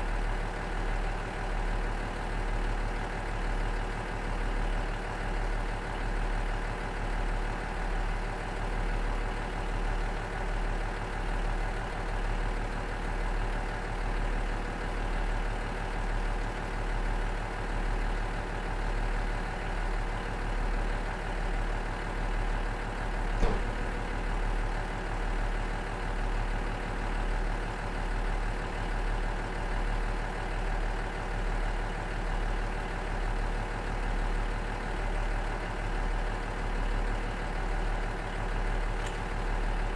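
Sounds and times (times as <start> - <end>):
diesel engine idling: 0.0 - 39.9
short click: 23.4 - 24.1.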